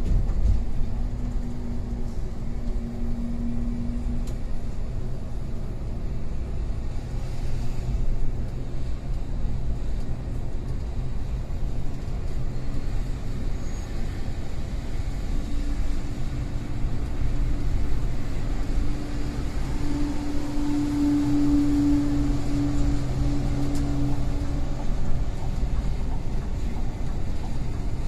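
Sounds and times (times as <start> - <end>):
bus engine drone: 0.0 - 28.0
road rumble: 0.0 - 28.0
humming tone: 18.3 - 25.4.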